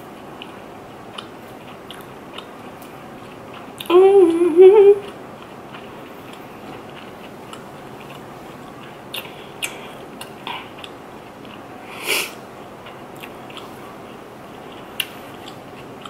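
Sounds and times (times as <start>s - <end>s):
person chewing food: 0.0s - 16.0s
mouth clicks and smacks: 0.3s - 4.0s, 5.0s - 16.0s
steady hiss: 11.8s - 12.5s.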